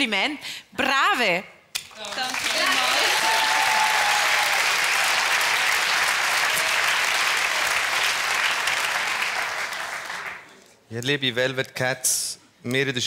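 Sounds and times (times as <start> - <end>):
audience applauding: 2.0 - 10.6.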